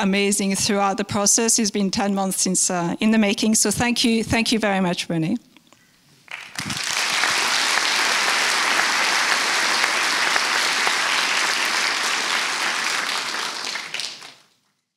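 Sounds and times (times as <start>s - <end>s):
audience applauding: 6.3s - 14.5s.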